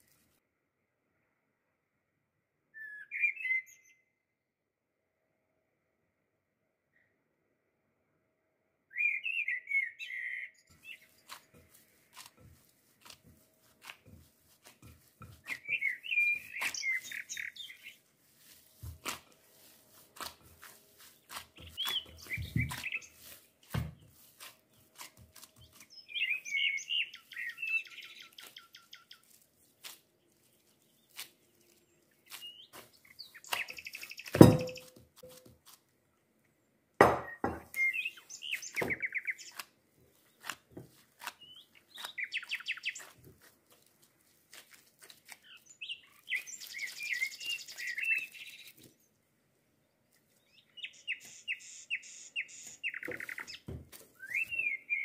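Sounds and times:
small bird chirping: 8.9s - 13.1s, 14.6s - 18.9s, 19.5s - 29.4s, 30.3s - 35.4s, 37.3s - 43.8s, 44.6s - 49.1s, 49.8s - 55.0s
dough being kneaded: 10.7s - 36.1s, 37.0s - 49.1s, 52.7s - 54.6s
glass bowl thump on countertop: 34.4s - 34.8s, 37.0s - 37.7s.

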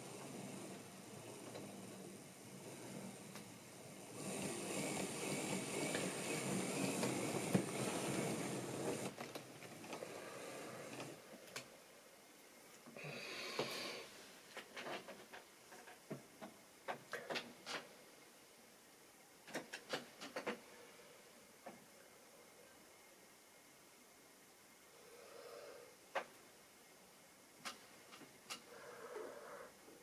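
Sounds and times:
locomotive motor humming: 0.0s - 9.2s
model train wheels rattling: 0.0s - 11.2s.

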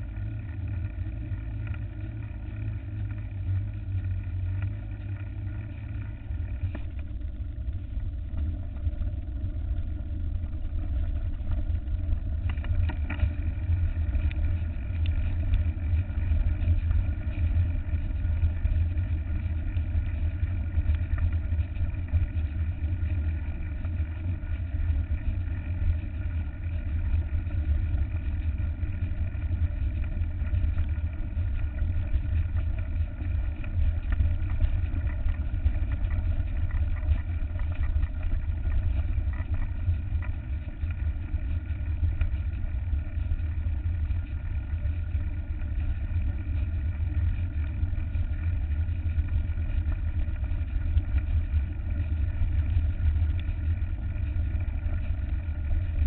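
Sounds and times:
faint bike rattles: 0.0s - 56.0s.

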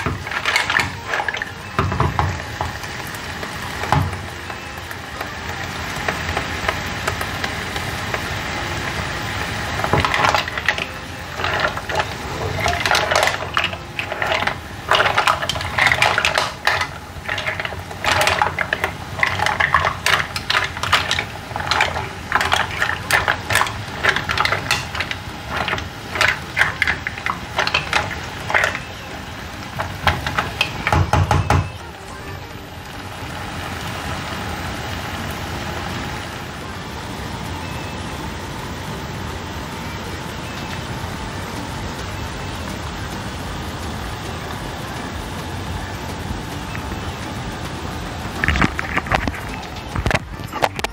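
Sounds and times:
mussel shells clattering in pan: 0.0s - 4.3s, 6.0s - 31.8s, 48.3s - 50.9s
steady sizzle: 0.0s - 50.9s.

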